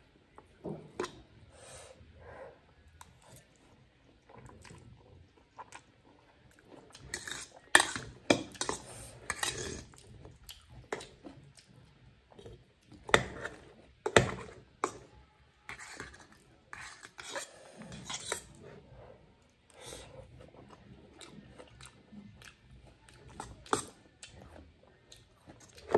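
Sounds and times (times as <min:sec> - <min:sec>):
fork scraping and clinking on bowl: 0:07.1 - 0:09.9, 0:16.8 - 0:18.6.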